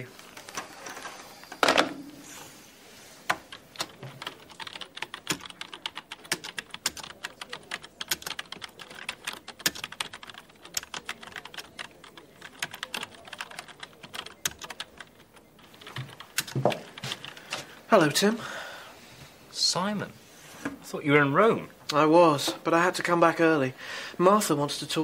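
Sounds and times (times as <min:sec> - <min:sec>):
keyboard typing clicks: 0:03.3 - 0:17.6.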